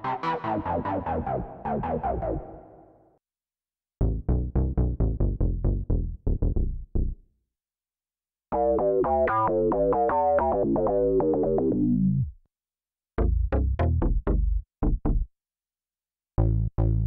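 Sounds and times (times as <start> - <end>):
staccato synth bass notes: 8.5 - 12.1, 13.2 - 15.3
synth bass line: 8.5 - 12.3.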